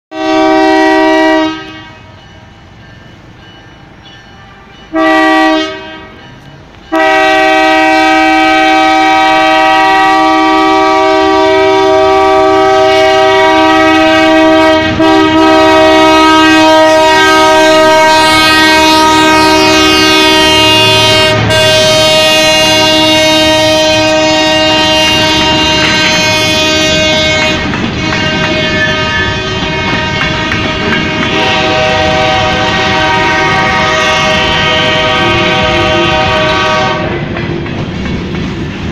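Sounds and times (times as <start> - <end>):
locomotive air horn: 0.1 - 2.2, 4.5 - 6.2, 6.9 - 37.3
train wheels clattering on rails: 16.9 - 38.9.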